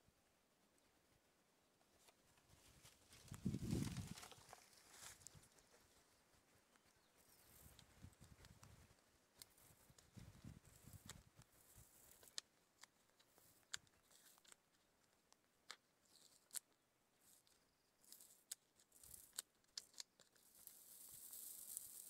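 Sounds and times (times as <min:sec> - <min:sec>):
sticky paper clicking and crinkling: 0:03.0 - 0:05.9, 0:07.7 - 0:22.0.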